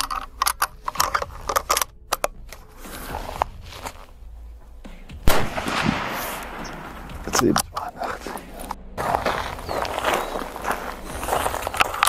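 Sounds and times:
rifle handling clicks: 0:00.0 - 0:02.7
rifle shot with echo: 0:05.2 - 0:07.5.

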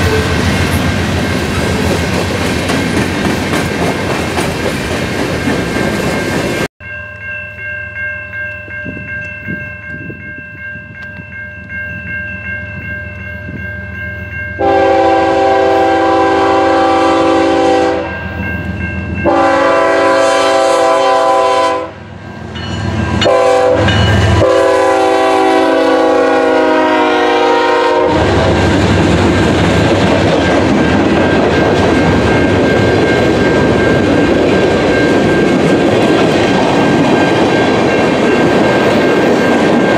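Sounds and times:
train roar: 0:00.0 - 0:06.7, 0:14.6 - 0:39.9
locomotive air horn blasts: 0:14.6 - 0:18.2, 0:19.3 - 0:22.1, 0:23.2 - 0:28.5.

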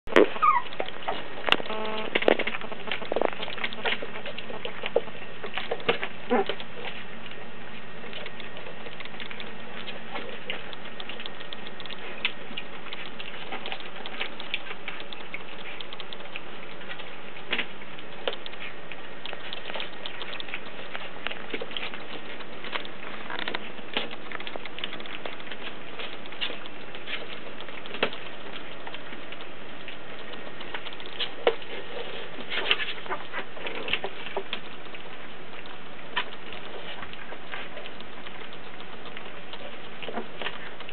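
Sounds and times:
puppies eating from metal bowl: 0:00.1 - 0:40.9.

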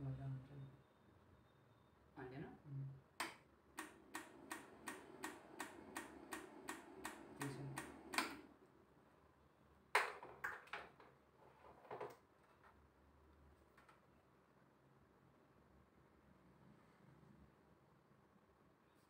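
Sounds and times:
electrical pulser clicking: 0:03.2 - 0:08.5.

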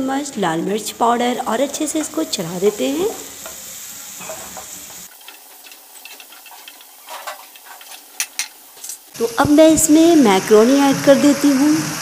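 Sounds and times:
vegetables sizzling in oil: 0:00.0 - 0:12.0
wooden spatula scraping a pan: 0:01.8 - 0:09.1.

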